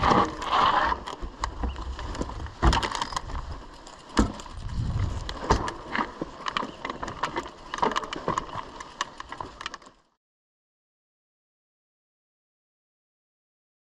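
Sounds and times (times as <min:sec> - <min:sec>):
bike rattling over gravel: 0:00.0 - 0:10.2
bike frame knocks: 0:04.1 - 0:04.6.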